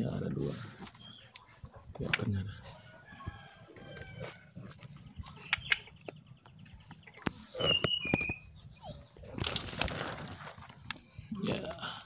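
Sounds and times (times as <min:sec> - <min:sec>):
dry grass and twigs rustling: 0:09.2 - 0:11.2.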